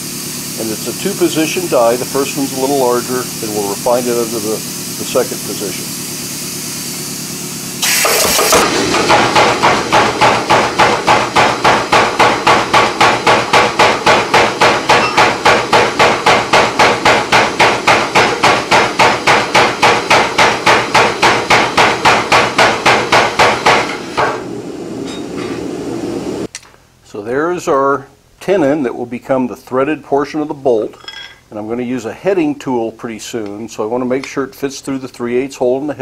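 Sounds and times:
power hammer striking steel: 7.8s - 25.7s.

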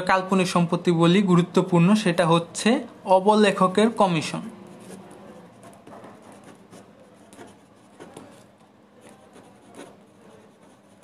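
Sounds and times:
pen scratching on paper: 4.5s - 11.0s.

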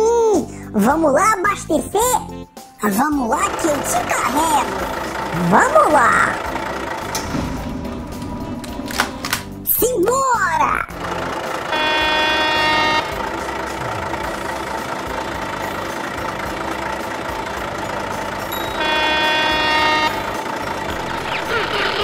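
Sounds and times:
truck horn honking: 3.5s - 7.2s, 11.1s - 22.0s
low vehicle running noise: 3.5s - 9.7s, 10.9s - 22.0s.

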